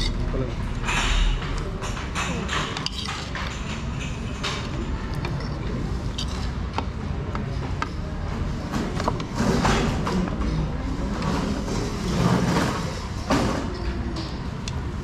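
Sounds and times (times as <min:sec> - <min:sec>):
cutlery clinking on plates: 0:00.8 - 0:05.6.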